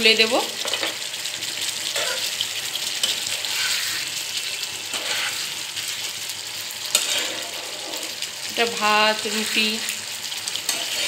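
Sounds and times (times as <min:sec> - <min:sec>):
gravy sizzling and bubbling in pan: 0:00.0 - 0:11.0
spatula stirring: 0:01.8 - 0:08.4, 0:09.2 - 0:11.0.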